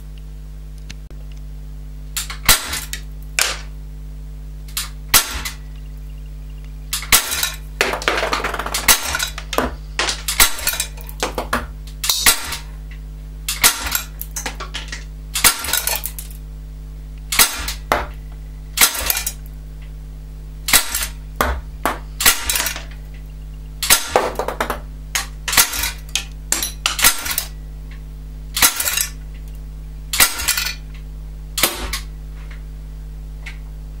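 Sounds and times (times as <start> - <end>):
steady low hum: 0.0 - 34.0
air pistol shots popping: 2.2 - 3.7, 4.8 - 5.6, 6.9 - 12.6, 17.3 - 18.2, 20.7 - 22.8, 23.8 - 25.9, 31.6 - 32.1.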